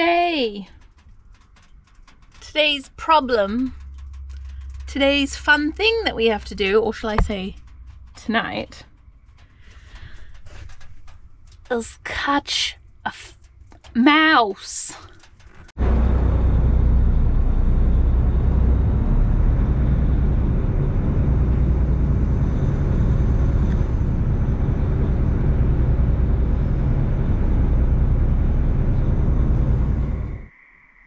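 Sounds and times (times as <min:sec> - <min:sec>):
boat engine drone: 0:00.0 - 0:14.4, 0:15.0 - 0:30.6
wind noise: 0:15.2 - 0:30.5.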